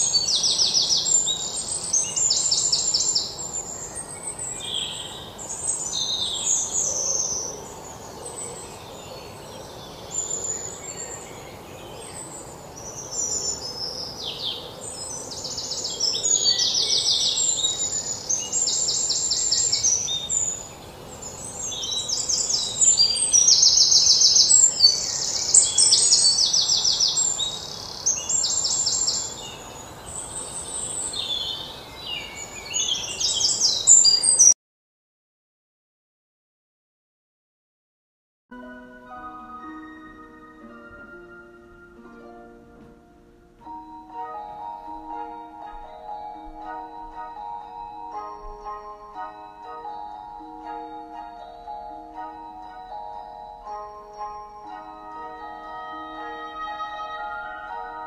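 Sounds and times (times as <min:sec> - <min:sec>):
faint steady hiss: 0:00.0 - 0:34.4, 0:38.6 - 0:58.0
birds singing: 0:00.0 - 0:34.6.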